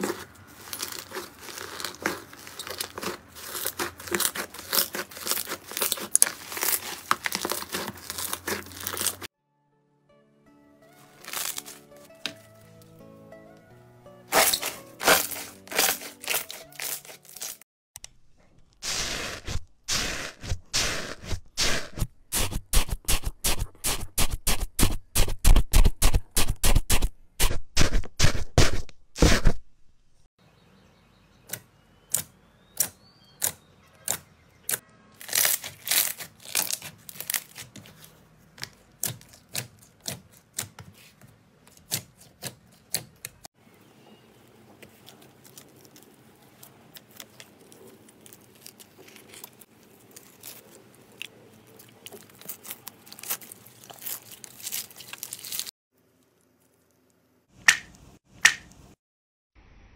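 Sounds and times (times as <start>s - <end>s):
slime crackling: 0.0s - 9.3s, 11.2s - 11.8s, 14.3s - 17.6s, 35.2s - 38.1s, 44.8s - 55.7s.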